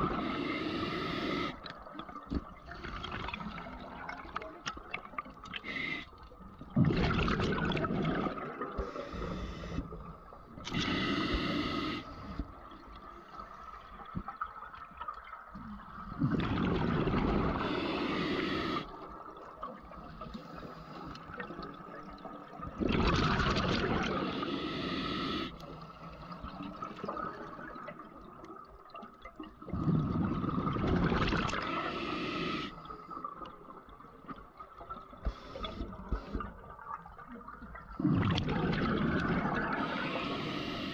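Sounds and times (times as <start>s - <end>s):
exhaled bubbles underwater: 0.0s - 40.9s
hissing regulator inhales: 0.1s - 1.6s, 5.6s - 6.1s, 8.8s - 10.0s, 10.7s - 12.5s, 17.5s - 18.9s, 24.2s - 26.1s, 31.6s - 32.8s, 39.8s - 40.9s.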